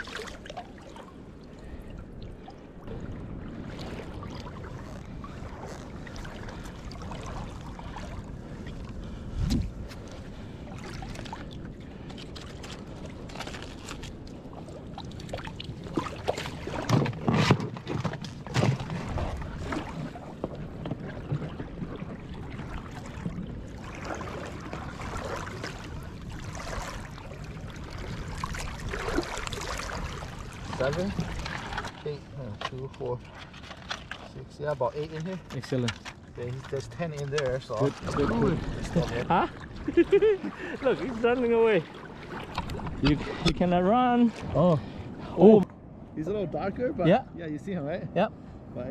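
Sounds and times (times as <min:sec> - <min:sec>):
water sloshing around legs: 0:00.0 - 0:43.5
knocks and clatter in plastic tub: 0:16.8 - 0:19.2.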